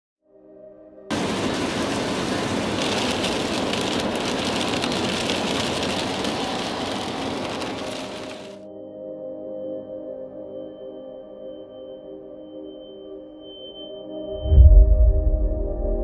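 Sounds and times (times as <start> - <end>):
soft ambient music: 0.2 - 3.5, 5.2 - 16.0
rain pattering on car roof: 1.1 - 8.6
tyre and road noise: 1.1 - 8.6.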